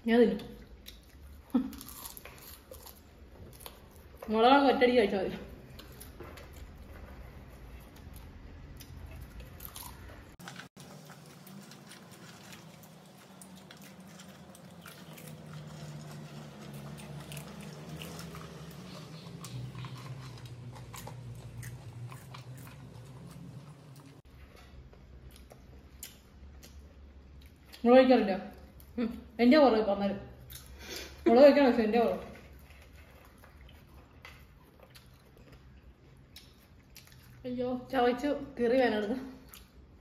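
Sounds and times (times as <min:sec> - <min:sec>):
popcorn being chewed: 0:00.6 - 0:04.4, 0:05.5 - 0:27.9, 0:31.9 - 0:37.4.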